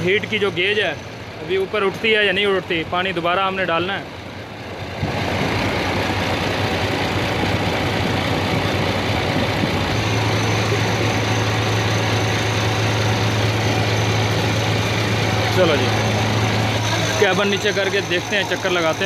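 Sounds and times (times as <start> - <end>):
deep steady hum: 0.0 - 19.0
diesel truck engine idling: 0.0 - 19.0.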